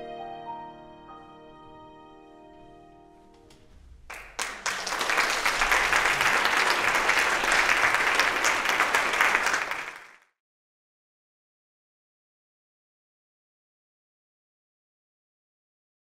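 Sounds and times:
audience applauding: 0:04.1 - 0:10.3.

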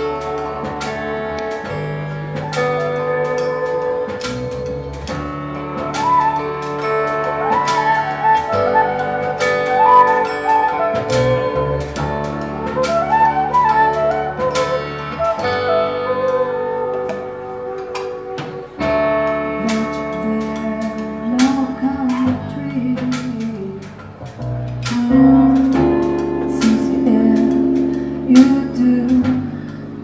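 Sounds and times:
sharp plucked and struck notes: 0:00.0 - 0:30.0
sustained wavering low tones: 0:24.4 - 0:30.0.

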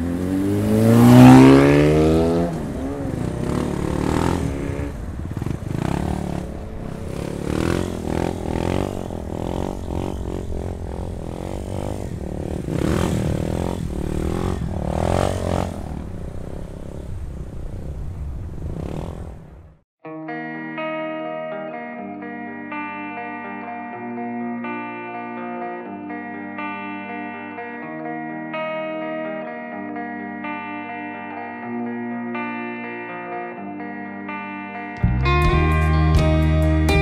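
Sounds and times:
motorcycle engine revving: 0:00.0 - 0:19.8.

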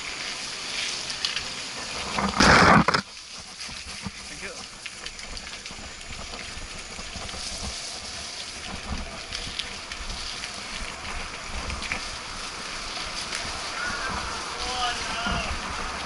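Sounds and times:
mountain bike rumbling on dirt trail: 0:00.0 - 0:16.0
wind buffeting microphone: 0:03.6 - 0:16.0.

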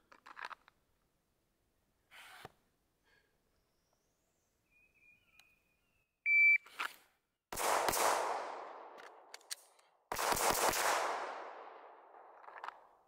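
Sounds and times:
shot timer beep: 0:06.3 - 0:06.6
pistol shots with echo: 0:07.5 - 0:09.3, 0:10.1 - 0:12.4.

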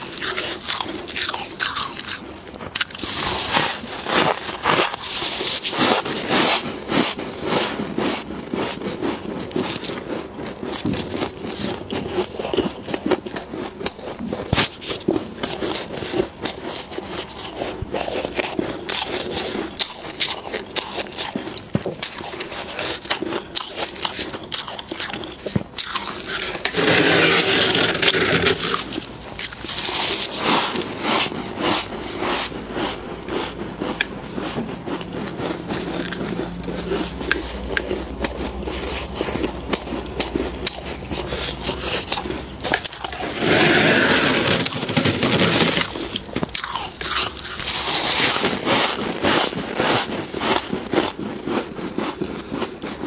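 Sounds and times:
frost crunching as chewed: 0:00.0 - 0:53.0
gloved hands scraping frost: 0:02.9 - 0:10.0, 0:26.0 - 0:46.4.

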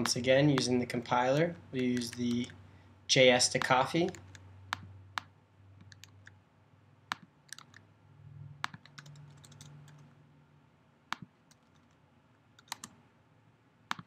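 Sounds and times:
computer keyboard keystrokes: 0:05.8 - 0:06.3, 0:07.1 - 0:07.8, 0:08.6 - 0:10.0, 0:12.6 - 0:12.9.

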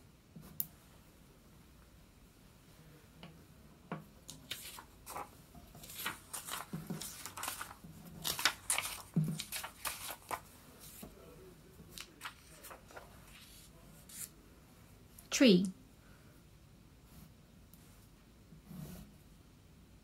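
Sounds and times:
paper cards rustling and tapping: 0:03.9 - 0:11.2, 0:11.8 - 0:14.3.

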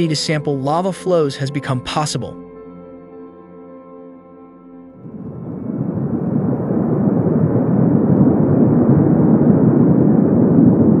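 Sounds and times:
lava fountain rushing rumble: 0:05.0 - 0:11.0.

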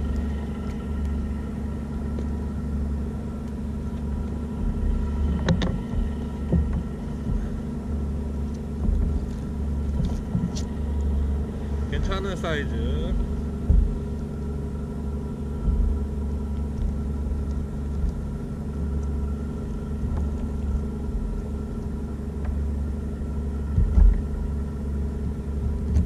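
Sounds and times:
faint steady hum: 0:00.0 - 0:26.0
wind buffeting microphone: 0:04.4 - 0:14.2
dull knocks: 0:05.3 - 0:07.7, 0:08.8 - 0:10.6, 0:13.6 - 0:14.1.

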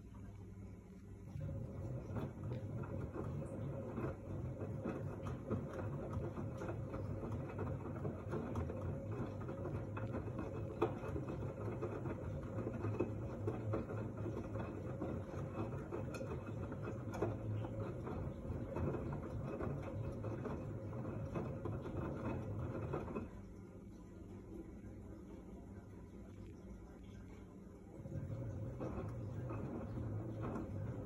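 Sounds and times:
washing machine motor hum: 0:00.0 - 0:31.0
water sloshing and laundry tumbling: 0:01.2 - 0:24.8, 0:26.4 - 0:31.0.

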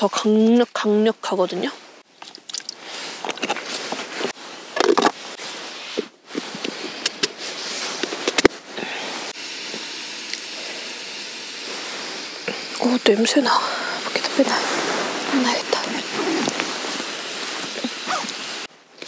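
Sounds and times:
heating pack fizzing and crackling: 0:02.1 - 0:05.6, 0:06.4 - 0:18.7
water pouring: 0:02.2 - 0:03.9
steady hiss: 0:04.2 - 0:18.7.

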